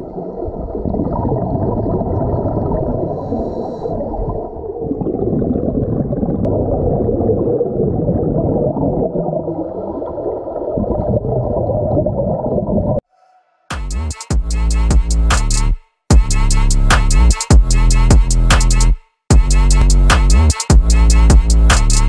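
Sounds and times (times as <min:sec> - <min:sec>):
bubbles gurgling: 0:00.0 - 0:13.0
diver breathing through regulator: 0:03.0 - 0:04.2.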